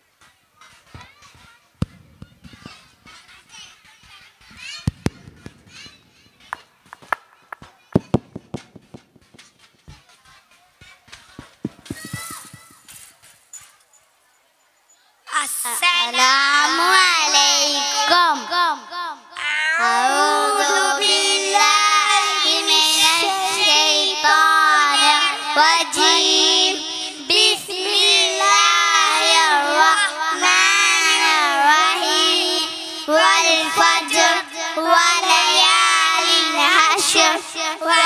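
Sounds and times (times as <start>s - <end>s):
boys singing into microphones: 15.3s - 38.0s.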